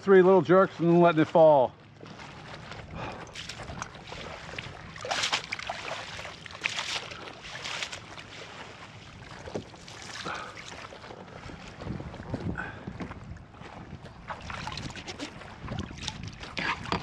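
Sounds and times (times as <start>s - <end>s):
quiet water sounds: 0.0s - 17.0s
net splashing in water: 3.3s - 11.0s, 14.3s - 16.9s.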